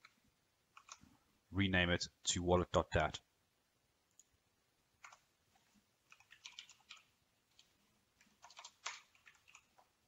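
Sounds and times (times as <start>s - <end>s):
typing on keyboard: 0.0s - 1.0s, 5.0s - 5.3s, 6.0s - 9.9s.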